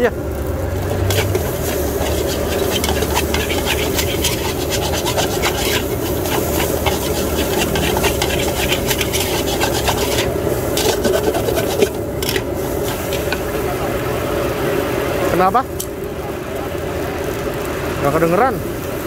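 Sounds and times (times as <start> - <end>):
steady background roar: 0.0 - 19.0
metal spatula scraping a wok: 1.0 - 13.6.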